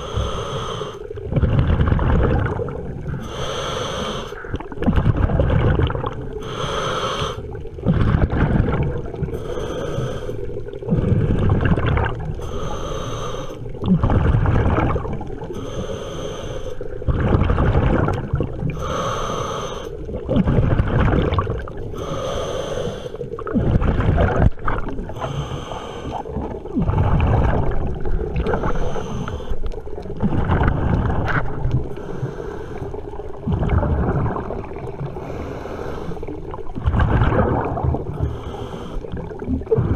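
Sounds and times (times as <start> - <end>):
regulator breathing hiss: 0.0 - 1.1, 3.2 - 4.4, 6.4 - 7.4, 12.4 - 13.6, 15.5 - 16.8, 18.8 - 20.0, 22.0 - 23.2, 25.1 - 26.3, 28.6 - 29.6, 38.2 - 39.2
exhaled bubbles rumbling: 1.0 - 3.6, 4.3 - 15.8, 16.7 - 39.9.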